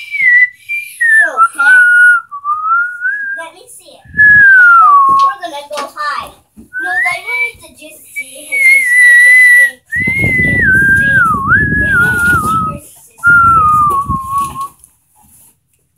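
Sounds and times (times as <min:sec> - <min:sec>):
person whistling a tune: 0:00.0 - 0:03.4, 0:04.1 - 0:05.3, 0:08.2 - 0:14.8.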